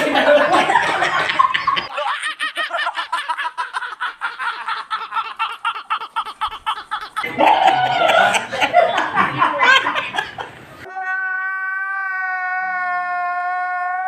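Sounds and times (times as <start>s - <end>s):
young men laughing: 0.0s - 10.6s.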